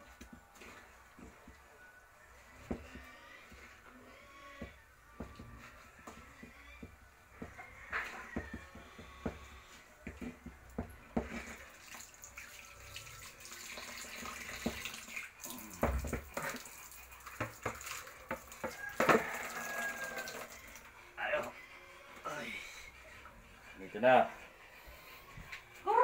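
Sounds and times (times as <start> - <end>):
knocks and scrapes on metal basin: 2.5 - 11.8, 15.8 - 20.7.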